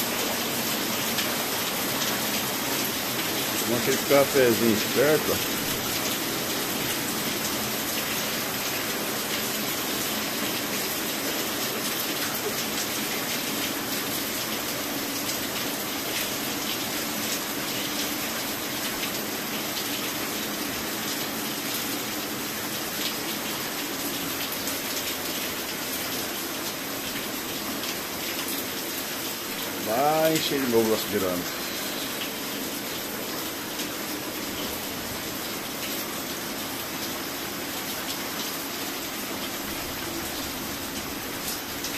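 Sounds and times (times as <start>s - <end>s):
heavy rain pouring: 0.0s - 41.9s.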